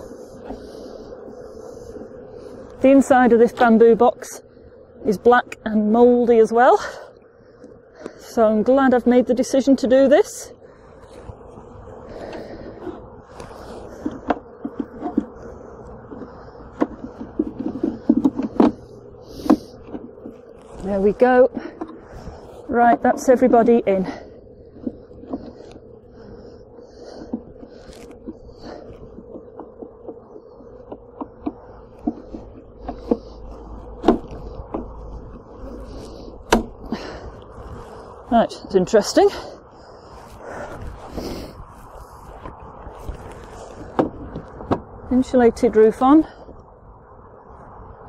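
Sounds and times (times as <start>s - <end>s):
honeybees humming: 0.0s - 48.0s.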